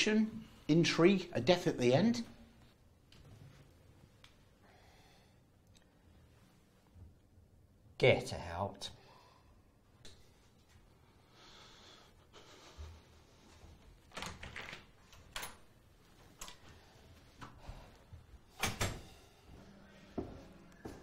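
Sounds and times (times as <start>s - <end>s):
door shutting: 18.5s - 19.1s
faint shuffling footsteps: 19.1s - 21.0s.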